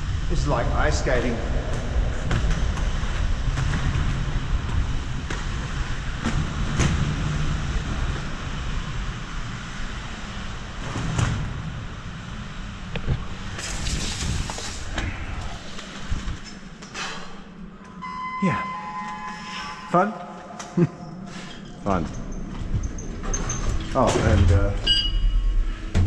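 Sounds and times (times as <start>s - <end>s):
skateboard wheels rolling on concrete: 1.2s - 16.9s.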